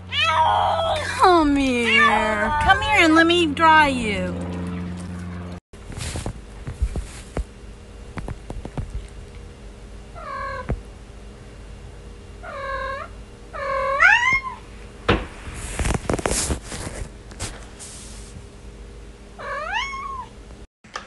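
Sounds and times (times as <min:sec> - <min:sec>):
cat meowing: 0:00.1 - 0:01.0, 0:01.7 - 0:03.0, 0:12.4 - 0:14.6, 0:19.4 - 0:20.3
scratchy noise: 0:15.3 - 0:18.3.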